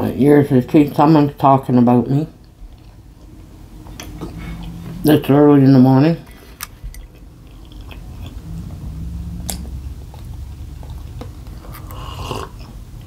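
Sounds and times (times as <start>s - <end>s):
person chewing food: 2.4s - 5.0s, 6.3s - 13.0s
person sipping: 3.9s - 5.0s, 9.4s - 12.8s.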